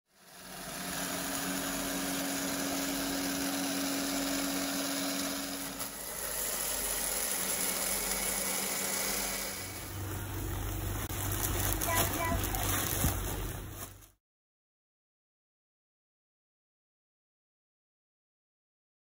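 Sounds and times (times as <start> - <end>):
cutting machine motor hum: 0.1 - 12.7.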